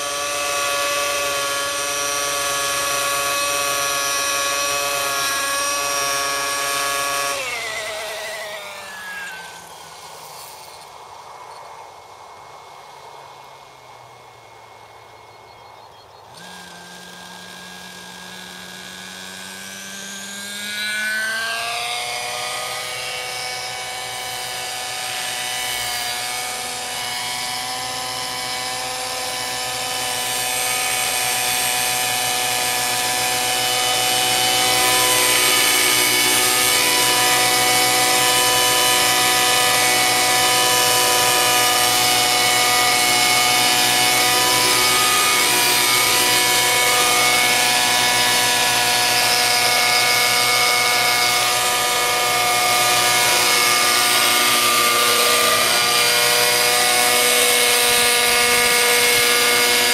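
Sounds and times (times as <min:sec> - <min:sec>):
model helicopter engine whining: 0:00.0 - 0:59.9
helicopter rotors spinning: 0:21.6 - 0:59.9.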